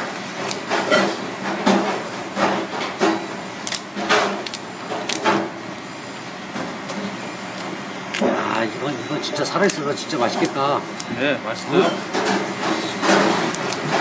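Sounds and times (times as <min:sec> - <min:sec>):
scissors cutting lobster shell: 0:09.6 - 0:10.6, 0:13.4 - 0:14.0.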